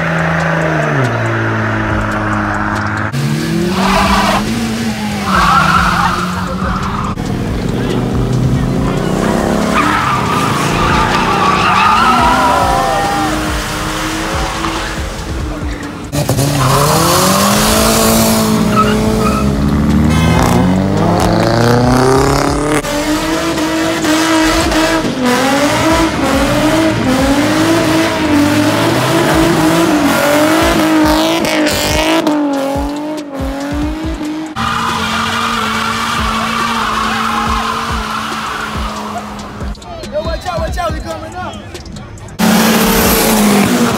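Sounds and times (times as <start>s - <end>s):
car engines revving: 0.0s - 43.9s
tyres squealing: 3.7s - 17.8s, 18.4s - 20.5s, 34.5s - 42.0s.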